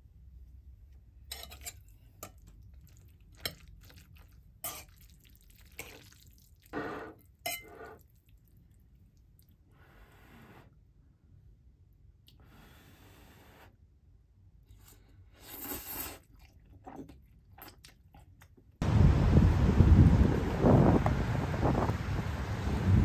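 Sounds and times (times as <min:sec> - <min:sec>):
wet squelchy noodles: 0:01.3 - 0:09.9, 0:14.7 - 0:18.8.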